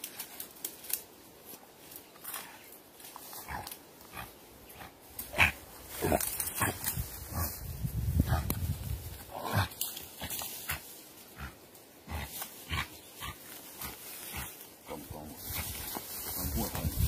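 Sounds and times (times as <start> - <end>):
hog grunting: 3.4 - 7.4, 11.4 - 15.0.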